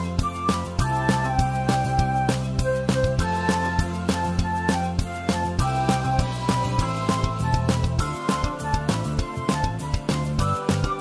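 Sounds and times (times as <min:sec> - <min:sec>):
background music with beat: 0:00.0 - 0:11.0.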